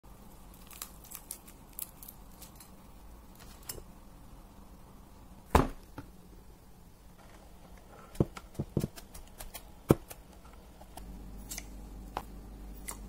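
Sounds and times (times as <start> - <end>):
fried batter crunching: 0.3 - 3.8.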